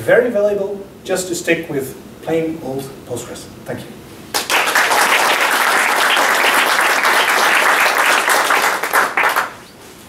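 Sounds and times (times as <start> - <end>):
audience applauding: 4.3 - 9.7.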